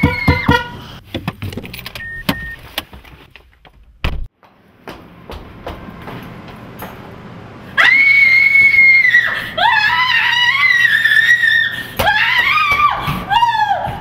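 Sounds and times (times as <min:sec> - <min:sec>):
woman screaming: 0:07.8 - 0:14.0.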